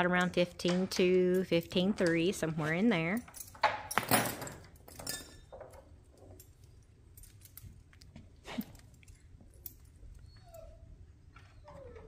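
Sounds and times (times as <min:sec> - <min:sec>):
bridle metal clinking and jingling: 0:01.0 - 0:08.0, 0:08.7 - 0:10.6.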